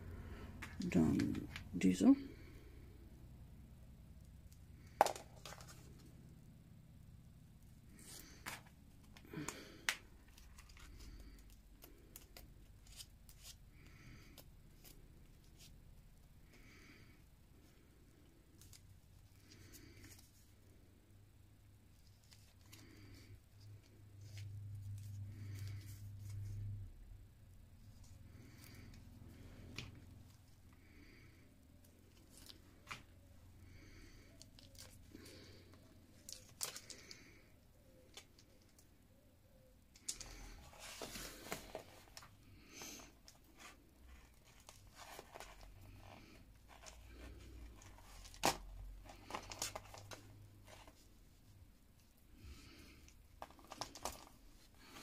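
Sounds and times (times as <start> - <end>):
small clicks and rustles of hands: 18.5 - 20.5, 34.3 - 39.0, 39.9 - 42.4.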